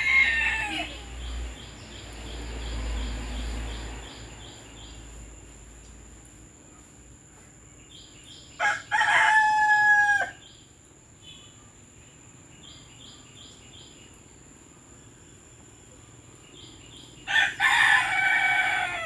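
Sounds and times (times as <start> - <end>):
rooster crowing: 0.0 - 1.2, 8.6 - 10.5, 17.2 - 19.0
small birds chirping: 0.0 - 19.0.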